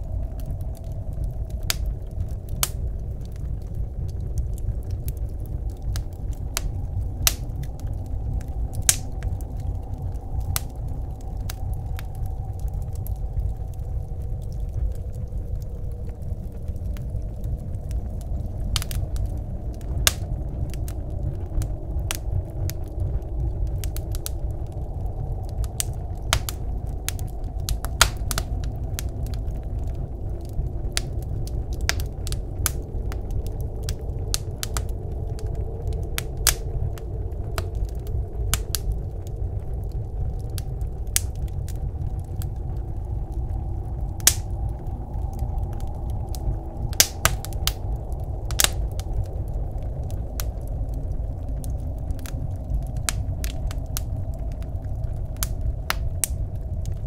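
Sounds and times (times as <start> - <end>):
low rumble of wind: 0.0 - 57.0
wood fire crackling and popping: 0.0 - 57.0.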